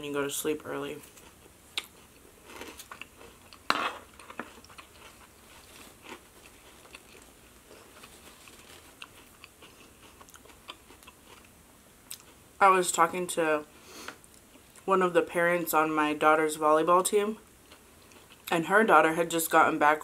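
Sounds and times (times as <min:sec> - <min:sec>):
crunchy chewing of lettuce: 0:01.0 - 0:12.4.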